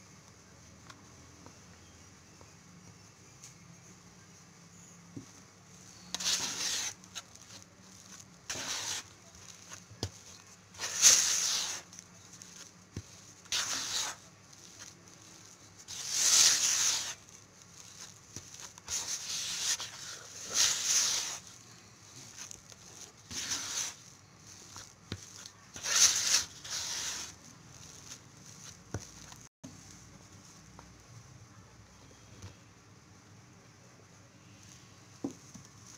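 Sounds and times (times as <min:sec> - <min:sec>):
spatula scraping dough in bowl: 0:05.9 - 0:29.5.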